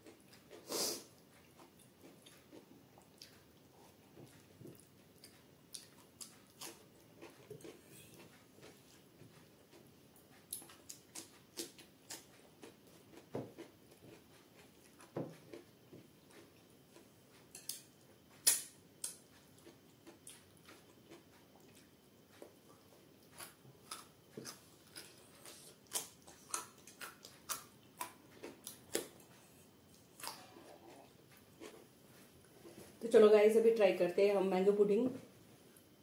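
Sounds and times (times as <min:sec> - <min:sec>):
wet chewing: 0:01.4 - 0:15.7, 0:18.4 - 0:31.8.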